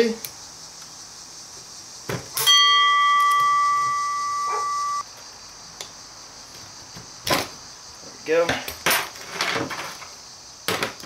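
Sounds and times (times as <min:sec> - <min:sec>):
bell-like metallic ring: 0:02.4 - 0:05.0.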